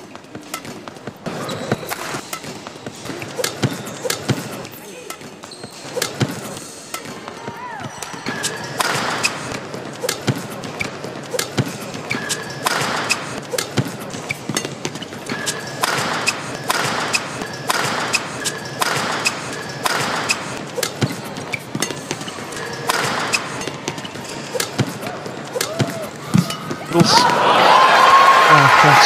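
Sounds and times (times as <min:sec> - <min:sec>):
shoe squeaks and scuffs: 0:00.0 - 0:27.2
racket striking shuttlecock: 0:07.8 - 0:27.3
footfalls on court floor: 0:24.8 - 0:27.6.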